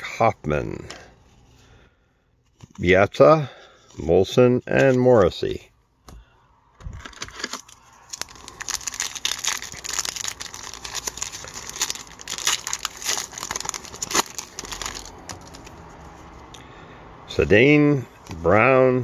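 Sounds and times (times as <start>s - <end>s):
foil wrapper crinkling: 7.0s - 16.2s.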